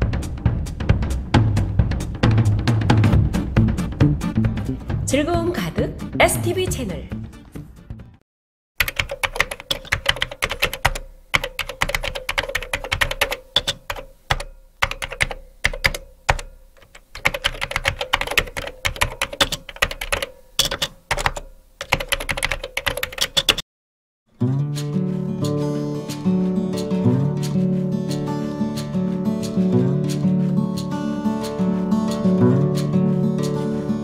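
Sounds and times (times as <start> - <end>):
computer keyboard typing: 8.8 - 23.6.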